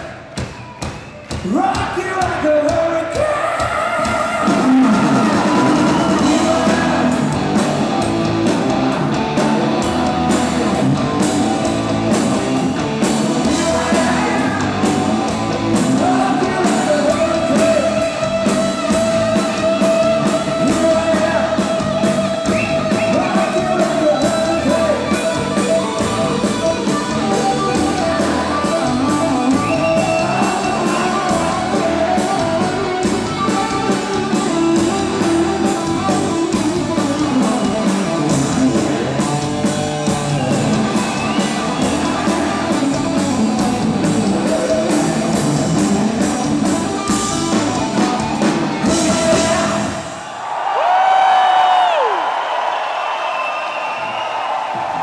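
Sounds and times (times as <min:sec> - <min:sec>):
drum kit: 0:00.0 - 0:50.2
man singing: 0:01.5 - 0:07.3, 0:13.5 - 0:15.0, 0:15.8 - 0:18.3, 0:18.9 - 0:25.3, 0:28.0 - 0:33.0, 0:44.1 - 0:45.5, 0:48.8 - 0:50.1
distorted electric guitars: 0:03.1 - 0:50.2.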